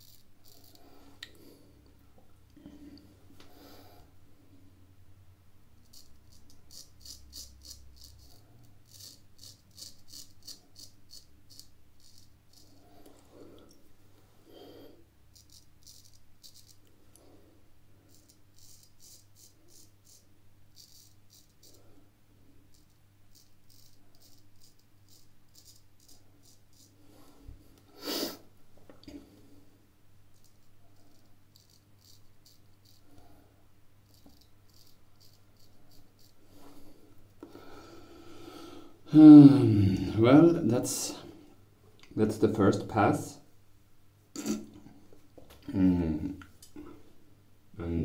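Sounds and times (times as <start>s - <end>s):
razor scraping stubble: 0.0s - 0.8s, 5.8s - 12.8s, 15.3s - 16.9s, 18.1s - 21.9s, 22.7s - 27.0s, 30.4s - 33.2s, 34.0s - 37.0s.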